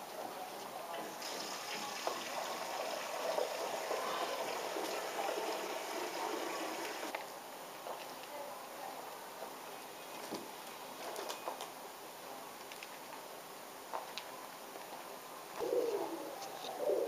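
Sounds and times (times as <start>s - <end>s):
pigeons pecking grain on concrete: 0.0s - 8.6s, 10.2s - 11.8s, 12.4s - 17.0s
steady high hiss: 0.0s - 17.0s.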